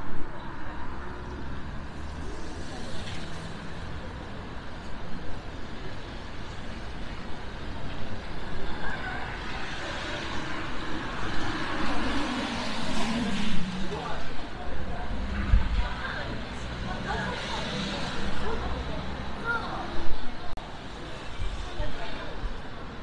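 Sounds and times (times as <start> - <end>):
traffic on wet road: 0.0 - 23.0
vehicle passing: 8.7 - 19.9.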